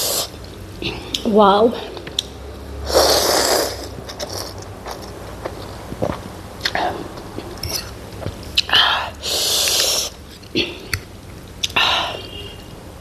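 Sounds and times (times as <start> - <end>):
slurping noodles: 2.9 - 5.1, 9.2 - 10.2.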